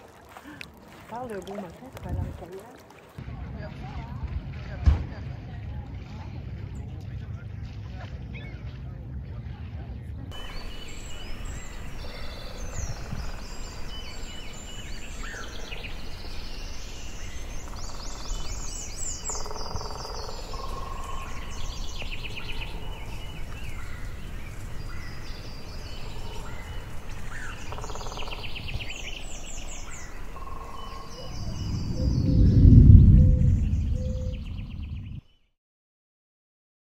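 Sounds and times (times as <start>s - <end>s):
songbirds chirping and trilling: 10.2s - 35.4s
louder low rumble: 31.1s - 35.2s
low background rumble: 31.1s - 35.2s.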